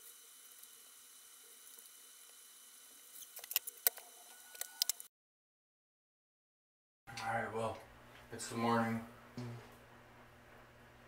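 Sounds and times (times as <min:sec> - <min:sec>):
medical tape clicks and crackles: 0:03.2 - 0:05.1.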